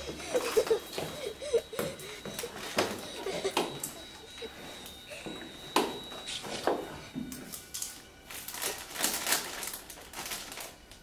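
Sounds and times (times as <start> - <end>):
snack packaging crinkling: 7.5 - 11.0.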